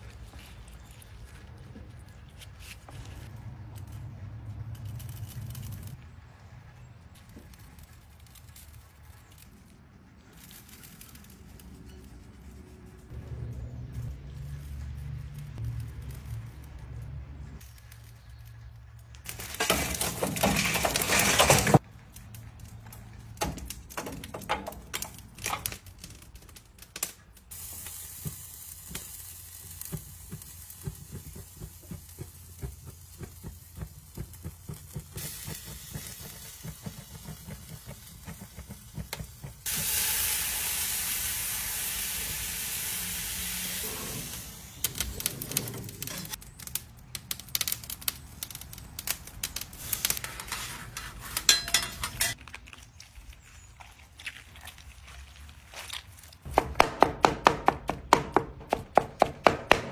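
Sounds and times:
chicken sizzling on grill: 27.3 - 52.4.

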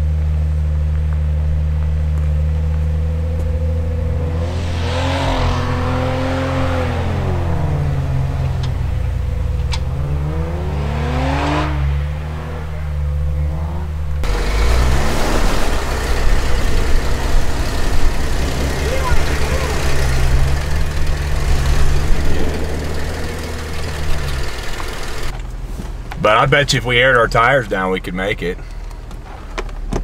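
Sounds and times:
rough loud engine: 0.0 - 29.7
engine revving: 2.1 - 25.3
hissing noise: 4.1 - 6.8
engine idling: 6.8 - 10.6, 12.4 - 29.5.

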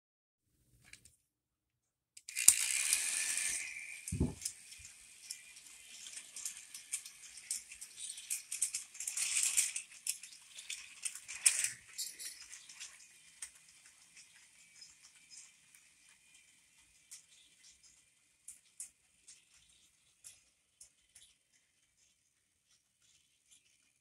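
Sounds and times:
toy train motor whine: 2.2 - 24.0
plastic wagons clicking and rattling: 3.6 - 22.1.

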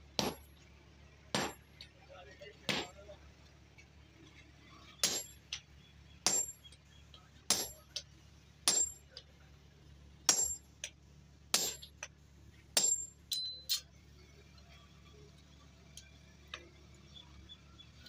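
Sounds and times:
hammer striking on anvil: 0.2 - 0.5, 2.7 - 2.9, 5.0 - 5.4, 6.2 - 6.6, 7.5 - 8.0, 8.7 - 9.1, 10.3 - 11.9, 12.8 - 13.8
light metal clinks: 12.8 - 15.0.

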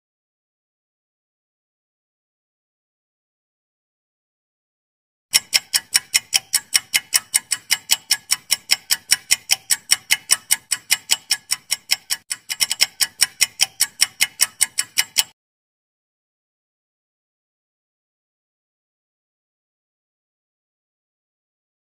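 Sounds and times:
clock-like ticking: 5.3 - 15.4.

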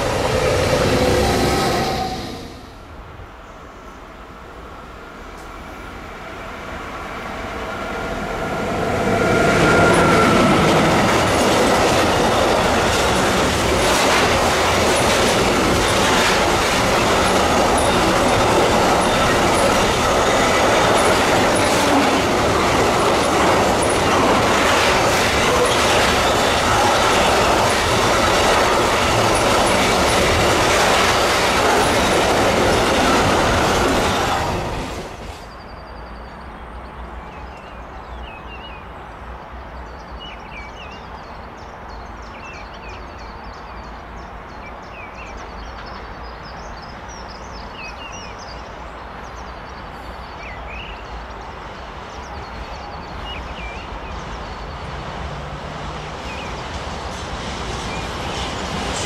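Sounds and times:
locomotive hum: 0.0 - 3.4, 4.2 - 35.5
rumble of train wagons: 0.0 - 59.0
clickety-clack over rail joints: 9.6 - 35.5, 45.2 - 46.6, 54.2 - 59.0.

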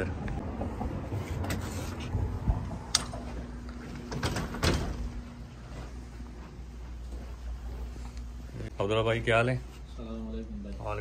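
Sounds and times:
faint steady hum: 1.7 - 11.0
door clicks and knocks: 4.1 - 5.2.

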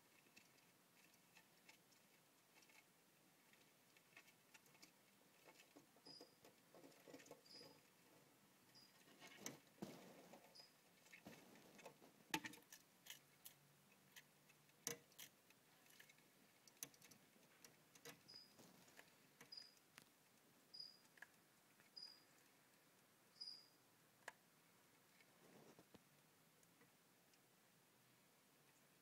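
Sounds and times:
chameleon chewing insect: 8.7 - 23.1.

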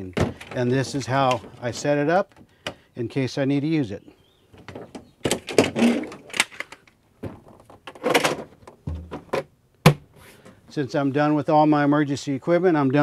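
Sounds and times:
plastic rattling and clattering: 0.1 - 2.4, 4.6 - 9.5.

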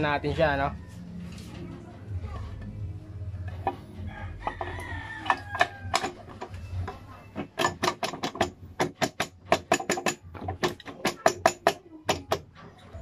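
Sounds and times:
metallic tapping on engine casing: 5.2 - 12.6.

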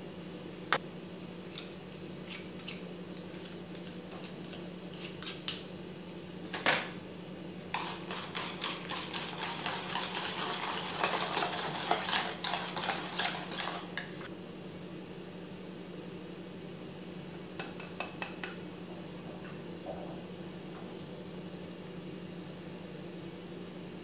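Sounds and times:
whisk beating batter in bowl: 7.7 - 14.1.

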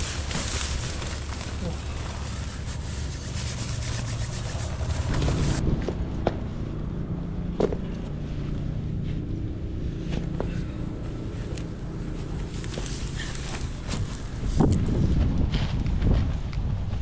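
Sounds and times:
tent fabric rustling: 0.0 - 5.6
wind rumbling on microphone: 13.2 - 17.0.

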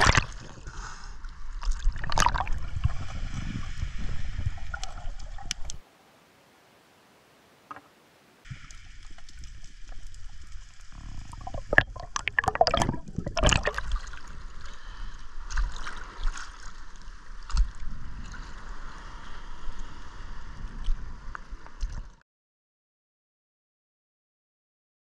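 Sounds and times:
water splashing and bubbling: 0.0 - 5.8, 8.5 - 19.9.

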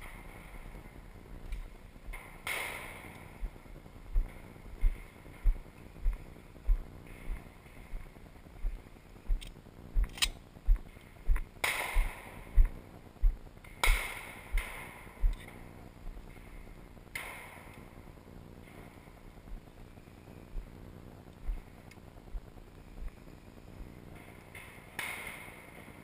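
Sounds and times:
footsteps low thumps: 0.0 - 17.2, 19.1 - 23.3
shotgun shots with echo: 11.6 - 12.4.

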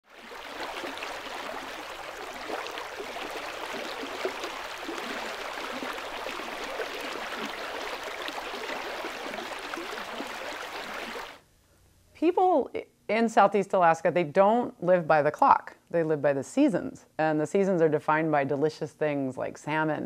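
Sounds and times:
stream babbling and splashing: 0.0 - 11.4.

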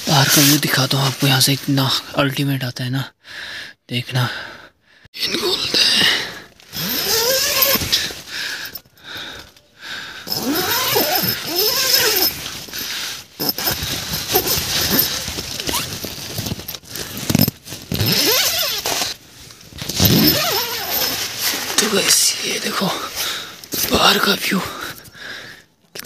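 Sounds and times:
nylon fabric rustling: 0.0 - 1.4, 6.6 - 8.9, 10.3 - 22.2
tent zipper pulled open: 6.7 - 8.8, 10.3 - 19.2, 19.8 - 21.9.

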